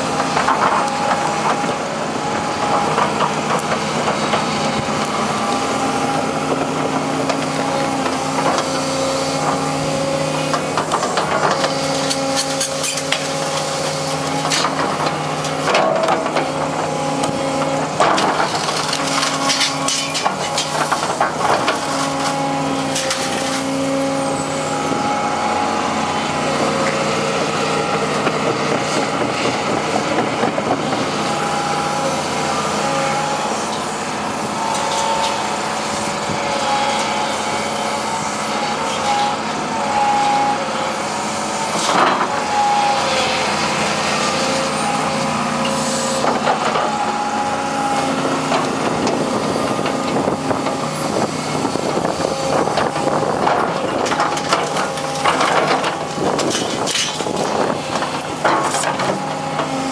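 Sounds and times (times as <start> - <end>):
diesel engine running: 0.0 - 59.9
hydraulic pump whining: 0.0 - 59.9
bucket scraping and clanking scrap: 2.6 - 25.0, 41.4 - 59.9.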